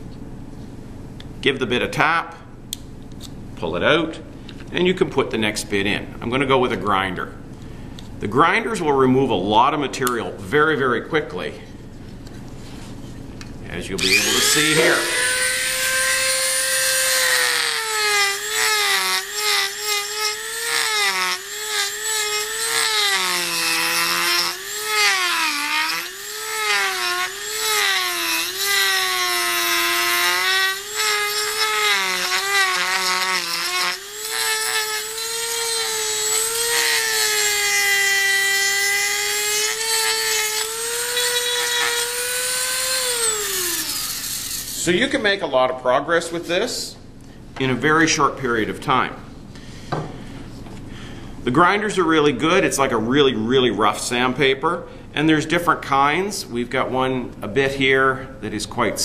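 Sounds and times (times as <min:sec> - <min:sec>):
rotary tool whining: 0:14.0 - 0:44.9
bit grinding wood: 0:14.0 - 0:45.0.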